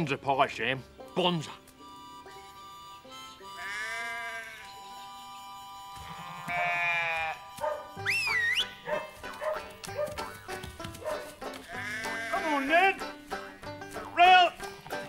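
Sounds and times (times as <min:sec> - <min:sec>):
background music: 0:00.0 - 0:15.0
sheep bleating: 0:03.4 - 0:04.7, 0:06.0 - 0:07.4, 0:11.6 - 0:13.0
high wavering whistle-like call: 0:08.0 - 0:08.8.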